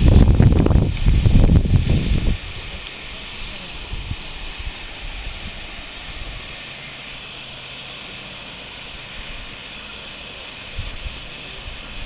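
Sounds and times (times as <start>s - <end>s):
wind buffeting microphone: 0.0s - 7.7s, 10.5s - 12.0s
river water rushing: 0.0s - 12.0s.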